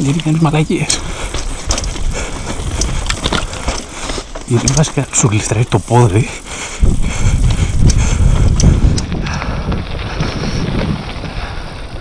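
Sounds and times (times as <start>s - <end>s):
bike rattling on rocky trail: 0.0s - 12.0s
wind buffeting microphone: 0.0s - 12.0s.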